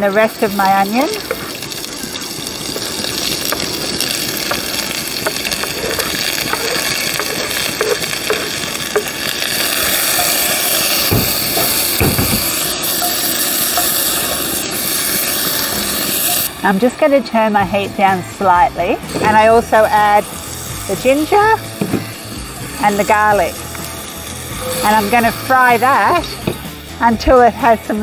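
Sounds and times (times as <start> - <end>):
onions sizzling in a pot: 0.0 - 28.0
wooden spoon scraping and clicking: 2.8 - 14.4.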